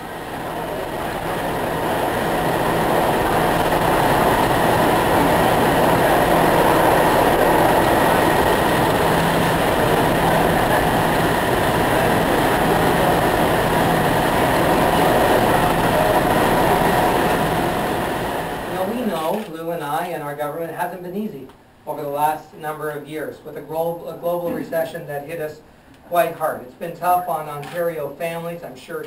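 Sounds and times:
train passing on rails: 0:00.0 - 0:18.9.

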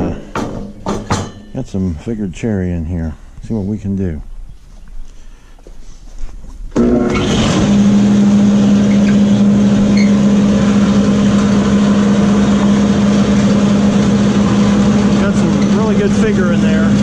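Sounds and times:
dust collector motor humming: 0:06.8 - 0:17.0.

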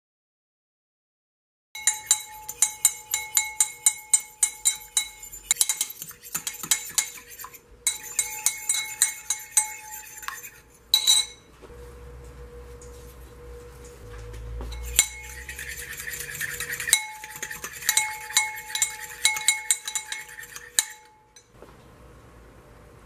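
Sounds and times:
fork beating egg in bowl: 0:01.8 - 0:11.5, 0:14.6 - 0:21.5.

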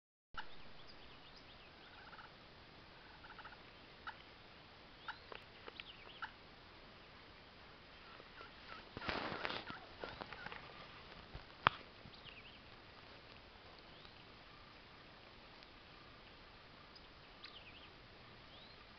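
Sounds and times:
small birds chirping: 0:00.4 - 0:02.4, 0:03.0 - 0:06.4, 0:07.3 - 0:18.9
turkey gobbling: 0:01.8 - 0:02.4, 0:03.0 - 0:04.3, 0:06.0 - 0:06.4, 0:08.0 - 0:10.6.

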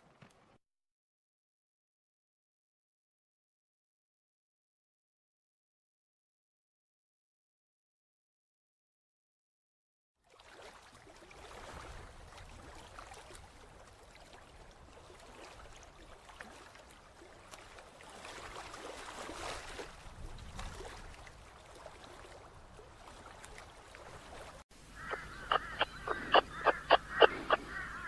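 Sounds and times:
water sloshing and splashing: 0:10.2 - 0:28.0.

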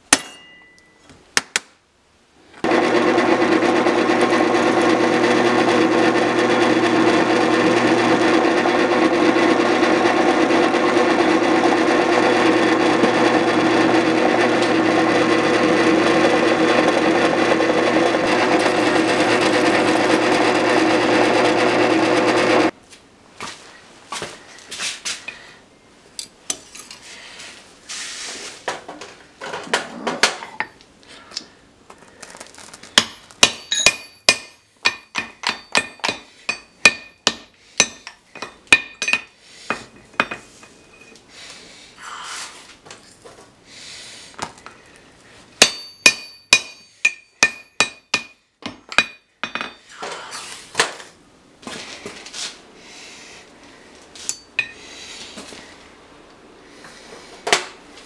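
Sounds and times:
hammer striking steel on anvil: 0:00.0 - 0:01.6, 0:33.0 - 0:39.3, 0:45.6 - 0:49.8, 0:54.3 - 0:54.8.

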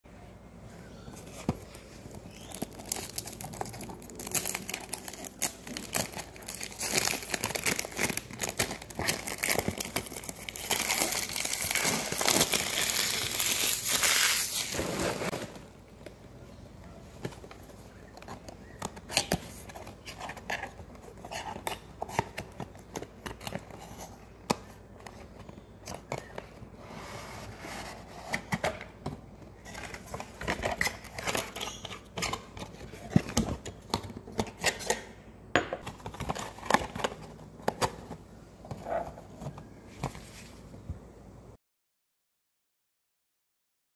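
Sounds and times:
packaging crinkling and tearing: 0:02.3 - 0:15.6.

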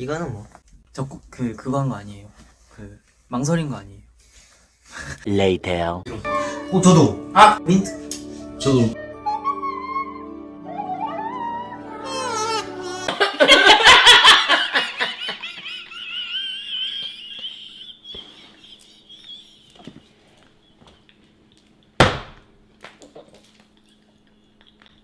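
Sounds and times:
women laughing: 0:13.0 - 0:20.1.

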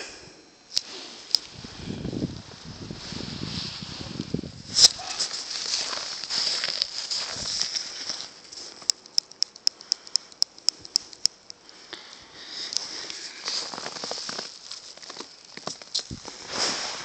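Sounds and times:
footsteps in snow and straw: 0:00.9 - 0:08.8, 0:12.9 - 0:17.0
sharp clicks: 0:08.6 - 0:12.1.

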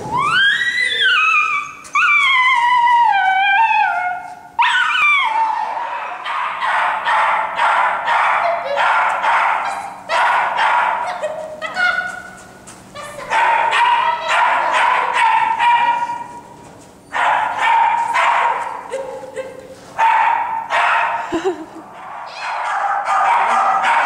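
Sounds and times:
small dog yelping howls: 0:00.2 - 0:06.3, 0:22.2 - 0:24.0
dog barking rapidly: 0:06.0 - 0:12.4, 0:13.0 - 0:16.4, 0:17.2 - 0:19.1, 0:20.0 - 0:21.2, 0:22.1 - 0:24.0.

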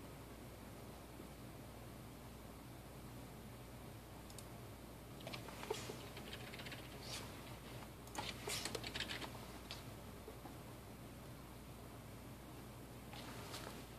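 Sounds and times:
faint low hum: 0:00.0 - 0:13.9
keyboard keys clicking: 0:08.1 - 0:09.3.

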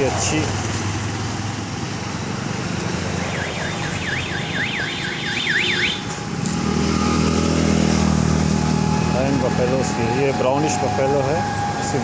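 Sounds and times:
road traffic: 0:00.0 - 0:12.0
vehicle engine hum: 0:00.0 - 0:12.0
warbling car alarm: 0:03.2 - 0:06.1.

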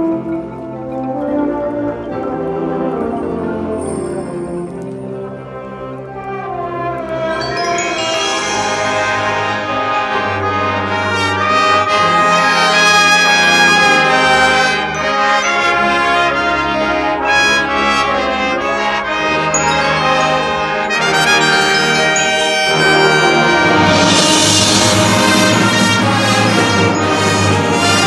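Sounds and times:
brass sustained chords: 0:01.2 - 0:28.0
marching band playing: 0:01.8 - 0:28.0.

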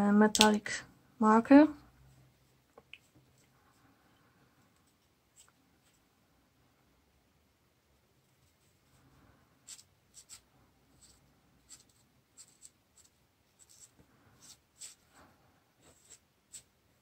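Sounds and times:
marker scratching on paper: 0:09.6 - 0:15.1, 0:15.8 - 0:17.0.

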